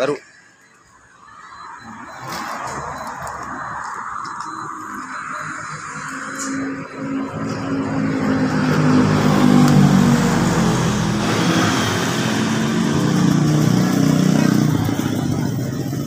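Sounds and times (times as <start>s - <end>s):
vehicle engine running: 7.2s - 16.0s.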